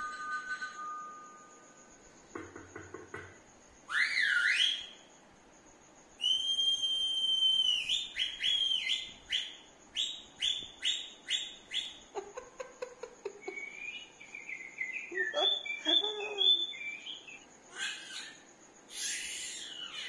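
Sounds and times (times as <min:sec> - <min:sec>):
high whistled notes: 0:06.2 - 0:09.5.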